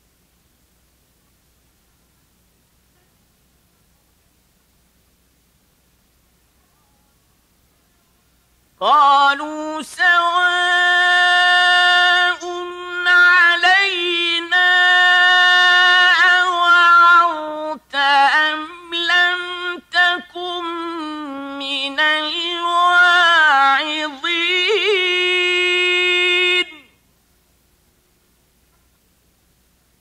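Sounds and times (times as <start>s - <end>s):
man chanting melodically: 8.8s - 27.0s.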